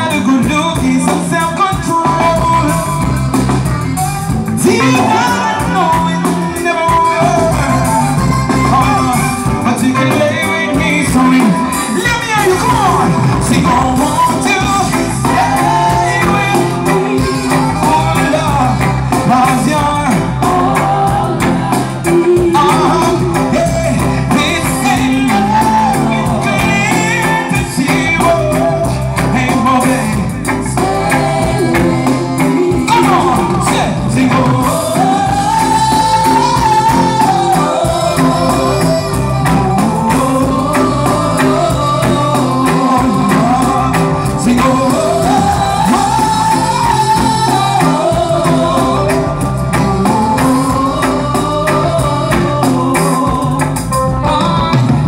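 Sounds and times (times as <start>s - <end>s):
live reggae band: 0.0s - 55.0s
man singing: 0.0s - 55.0s.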